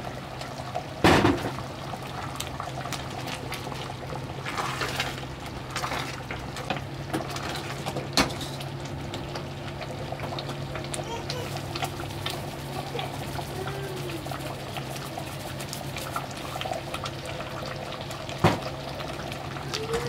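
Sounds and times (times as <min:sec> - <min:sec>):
stew bubbling in pot: 0:00.0 - 0:20.0.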